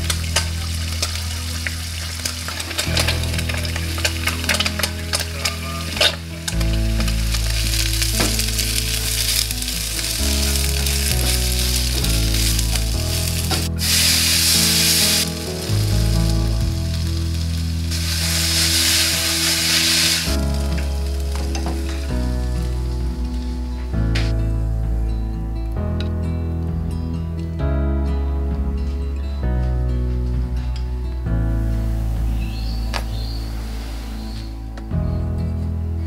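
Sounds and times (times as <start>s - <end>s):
food sizzling in a pan: 0.0s - 22.0s.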